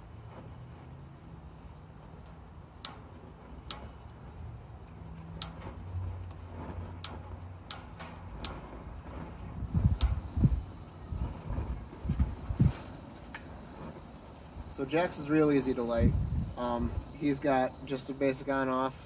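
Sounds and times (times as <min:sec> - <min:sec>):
stove igniter clicking: 0:02.2 - 0:11.2.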